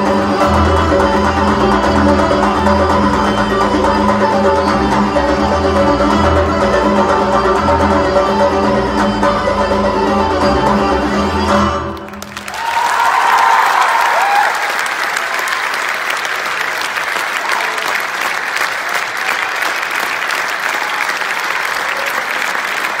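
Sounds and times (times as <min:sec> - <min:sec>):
audience applauding: 0:11.9 - 0:23.0.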